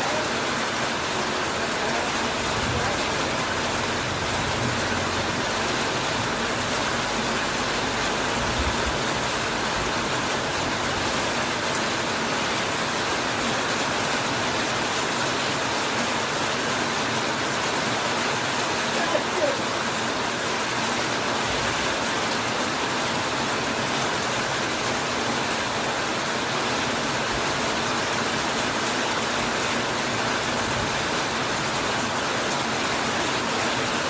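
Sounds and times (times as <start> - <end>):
heavy rain on a metal roof: 0.0 - 34.0.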